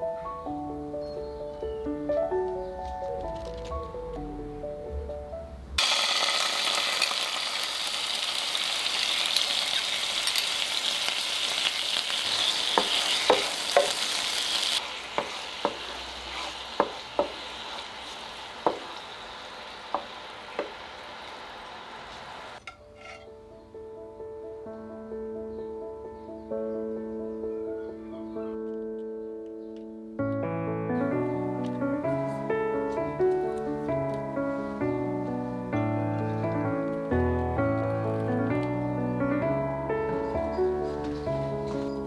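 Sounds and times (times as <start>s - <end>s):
sauce sizzling in a frying pan: 5.8s - 22.6s
wooden spoon knocking on pan: 12.7s - 14.0s, 15.1s - 15.9s, 16.7s - 17.5s, 18.6s - 19.0s, 19.9s - 20.8s.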